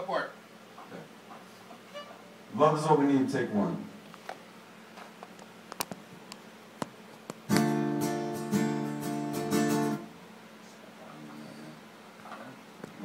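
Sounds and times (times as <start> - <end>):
acoustic guitar strumming chord: 7.5 - 10.2.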